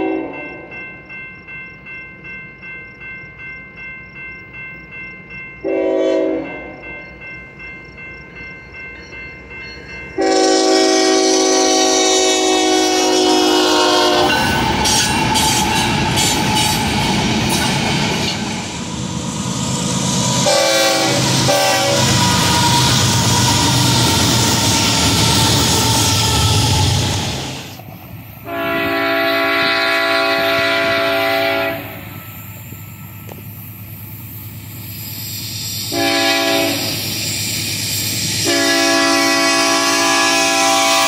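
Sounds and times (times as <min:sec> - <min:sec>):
locomotive air horn: 0:00.0 - 0:00.6, 0:05.6 - 0:06.8, 0:10.2 - 0:16.4, 0:20.4 - 0:27.3, 0:28.4 - 0:32.0, 0:35.9 - 0:37.0, 0:38.4 - 0:41.0
crossing bell ringing: 0:00.0 - 0:27.3
train wheels on rails: 0:00.0 - 0:41.0.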